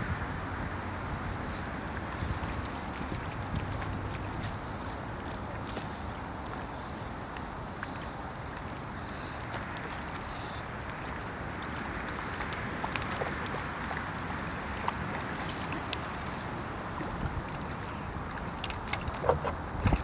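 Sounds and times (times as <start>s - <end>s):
wind-like rush: 0.0s - 20.0s.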